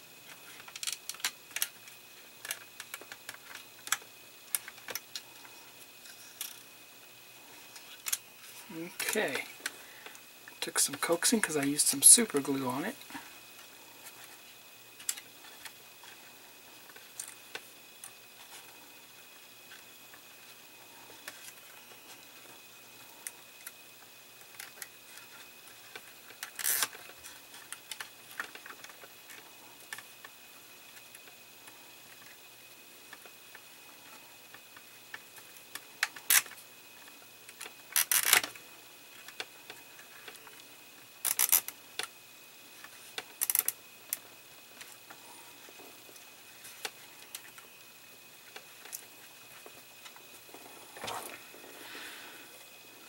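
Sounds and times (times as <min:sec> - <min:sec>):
fingers clicking and rustling wires: 0:00.3 - 0:05.5, 0:37.5 - 0:38.6, 0:41.2 - 0:42.1, 0:42.8 - 0:44.2
cable tie ratcheting clicks: 0:00.5 - 0:05.3, 0:07.8 - 0:08.3, 0:25.9 - 0:30.0, 0:35.7 - 0:36.6, 0:37.5 - 0:38.5, 0:41.2 - 0:42.1, 0:43.2 - 0:44.2.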